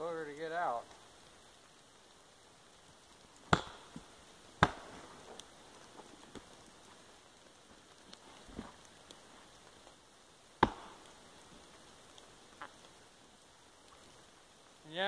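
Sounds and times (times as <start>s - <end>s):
sharp knocks on wood: 3.5s - 3.8s
faint ticks: 5.3s - 13.1s, 13.7s - 14.4s.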